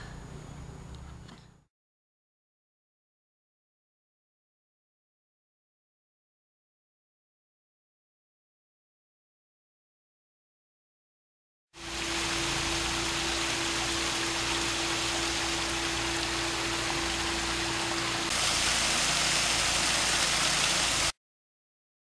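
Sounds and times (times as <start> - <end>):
steady hum: 11.8 - 21.1
water running over rocks: 11.8 - 21.1.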